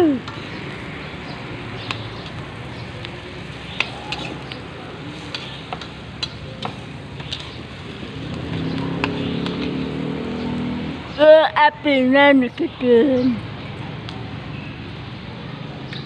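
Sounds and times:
food sizzling in hot oil: 1.1 - 11.0
metal spatula scraping wok: 3.5 - 7.8.

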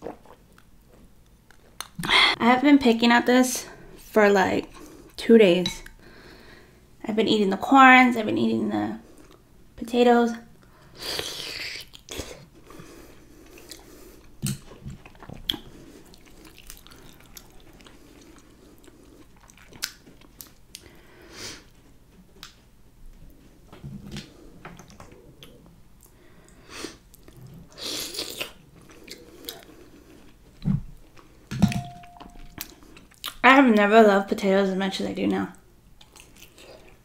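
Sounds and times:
chewing and wet mouth sounds: 0.0 - 2.2, 11.2 - 20.9, 24.8 - 33.8, 36.0 - 37.0.

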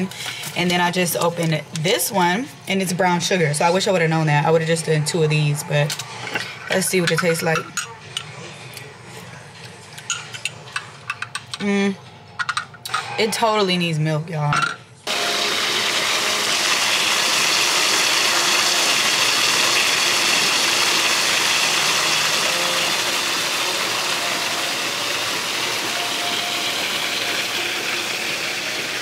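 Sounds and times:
water gushing into hot tub: 15.1 - 29.0.

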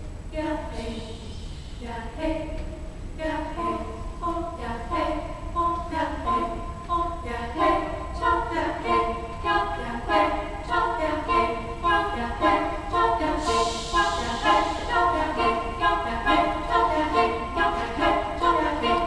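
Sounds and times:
girls' choir singing a cappella: 0.0 - 19.0
brief high hissing: 13.3 - 15.4.

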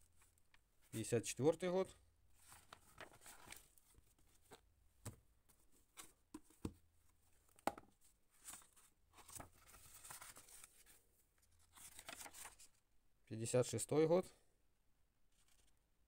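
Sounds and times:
book pages turning: 2.4 - 6.8, 8.4 - 12.8, 15.3 - 15.8.

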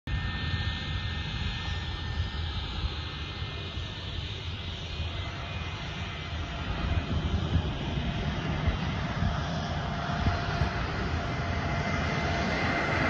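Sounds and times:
airplane engines droning: 0.1 - 13.0
thin engine whine: 0.1 - 13.0.

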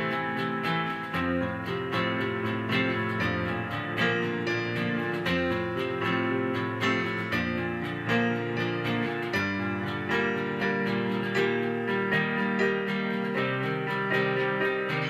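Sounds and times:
acoustic guitar picked and strummed: 0.0 - 15.0
held piano chords: 0.0 - 15.0.

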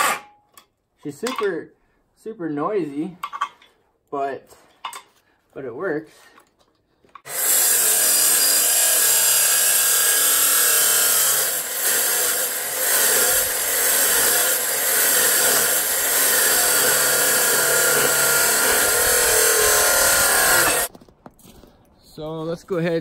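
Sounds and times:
chop saw cutting steel: 0.0 - 0.4, 7.2 - 20.9.

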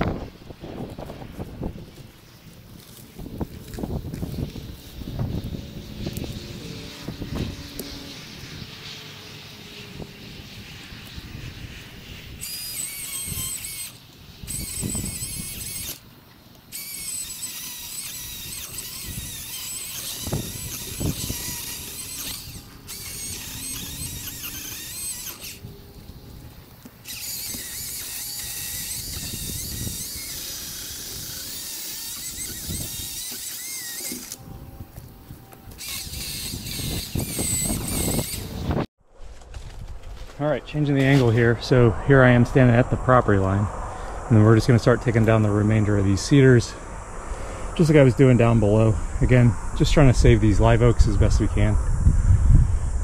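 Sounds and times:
chainsaw whining through wood: 2.8 - 8.8, 12.4 - 16.0, 16.7 - 35.1, 35.7 - 38.8.

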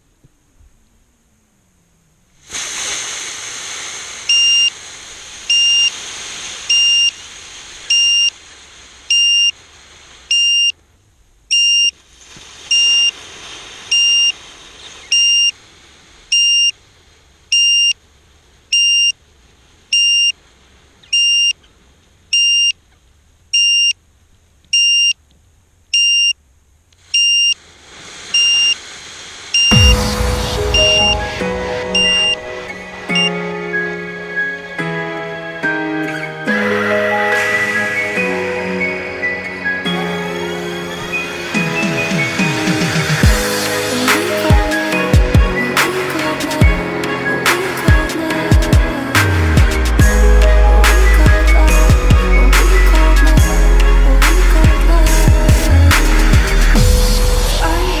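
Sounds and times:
hiss: 2.4 - 10.7, 12.0 - 17.4, 27.0 - 33.3, 40.4 - 58.0
short high beeps: 4.3 - 4.7, 5.5 - 5.9, 6.7 - 7.1, 7.9 - 8.3, 9.1 - 9.5, 10.3 - 10.7, 11.5 - 11.9, 12.7 - 13.1, 13.9 - 14.3, 15.1 - 15.5, 16.3 - 16.7, 17.5 - 18.0, 18.7 - 19.2, 20.0 - 20.3, 21.1 - 21.6, 22.4 - 22.8, 23.6 - 24.0, 24.8 - 25.2, 26.0 - 26.3, 27.2 - 27.6, 28.4 - 28.8, 29.6 - 33.4.

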